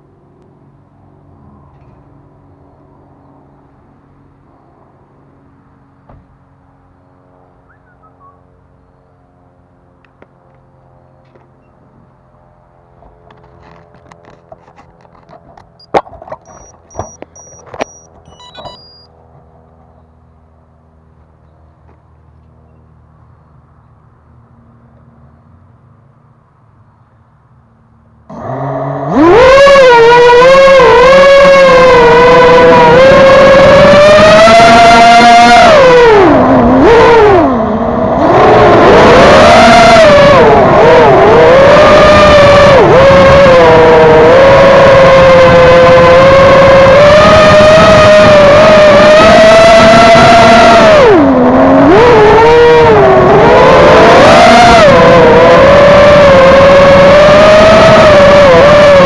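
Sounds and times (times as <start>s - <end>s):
drone propellers humming: 0.0s - 59.0s
short high beeps: 15.8s - 19.1s.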